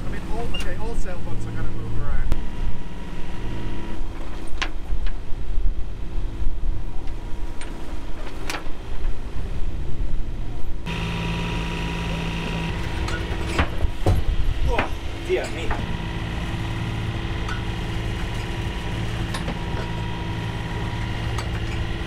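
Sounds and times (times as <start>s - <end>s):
boat engine running: 0.0s - 6.4s, 10.8s - 22.0s.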